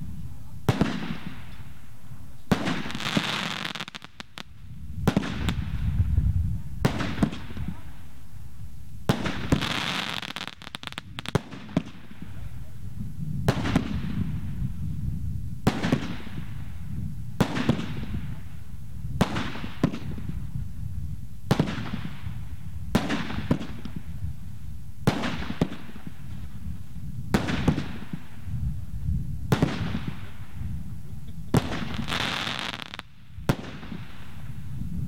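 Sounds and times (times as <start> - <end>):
fireworks bangs: 0.6 - 8.2, 9.0 - 12.8, 13.4 - 14.6, 15.6 - 20.6, 21.5 - 24.2, 25.0 - 28.5, 29.5 - 30.8, 31.4 - 34.7.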